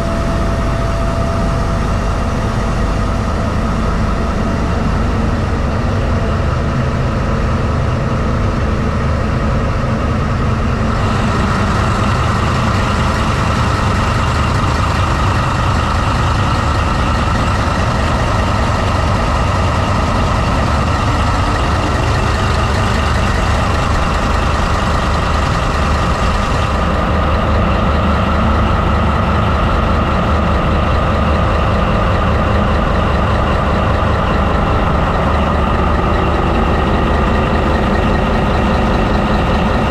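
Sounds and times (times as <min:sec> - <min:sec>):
locomotive diesel engine running: 0:00.0 - 0:39.9.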